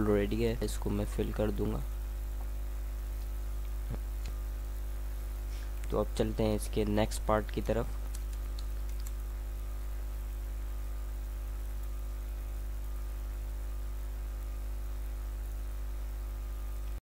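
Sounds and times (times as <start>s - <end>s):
electrical mains hum: 0.0s - 17.0s
faint clicks: 7.5s - 9.2s.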